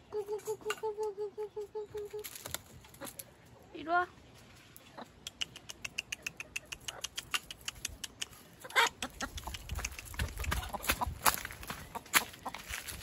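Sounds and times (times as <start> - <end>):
rapid even clicking: 9.0 - 10.7
footsteps through dry leaves: 10.6 - 13.0.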